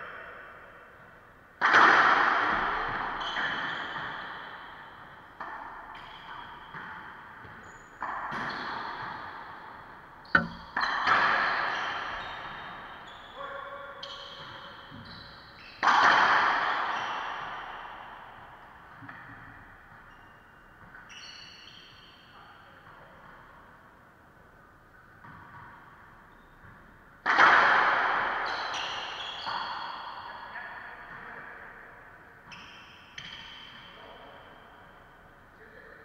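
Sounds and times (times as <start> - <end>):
racquets striking ball: 10.3 - 11.4
ball smacking walls and floor: 10.4 - 10.9.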